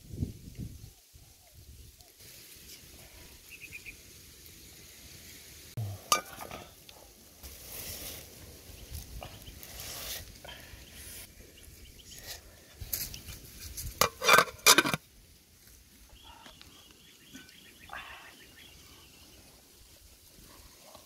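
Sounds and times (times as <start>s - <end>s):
pot lid clanking on metal pot: 6.1s - 6.7s, 14.0s - 15.0s.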